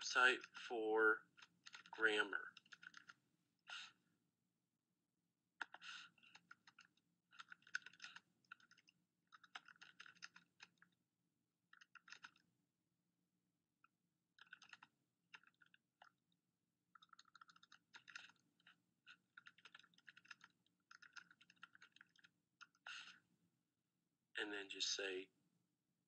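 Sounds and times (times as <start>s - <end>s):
typing on computer keyboard: 1.3s - 3.9s, 5.6s - 11.0s, 11.7s - 12.5s, 14.3s - 16.3s, 16.9s - 23.2s.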